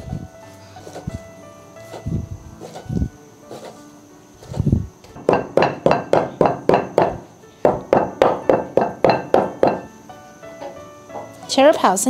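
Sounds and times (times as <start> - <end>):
cleaver chopping on wooden board: 5.2 - 9.9.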